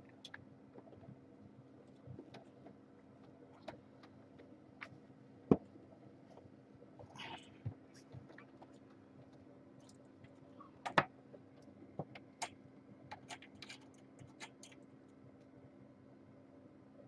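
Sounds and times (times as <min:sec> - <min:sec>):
steady low hum: 0:00.0 - 0:17.0
kittens scampering clicks and taps: 0:06.2 - 0:15.5.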